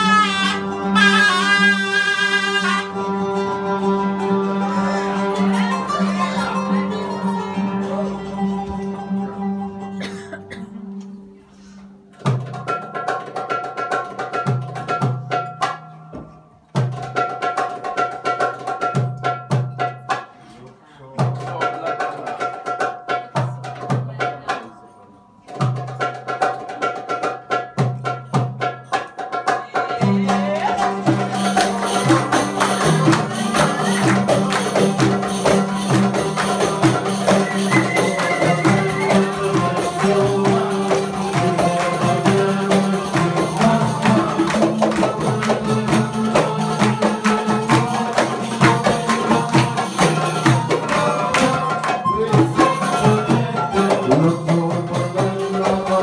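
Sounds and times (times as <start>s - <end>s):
oud and violin dance music: 4.8s - 8.4s, 36.3s - 40.4s
sharp percussive strokes: 30.1s - 56.0s.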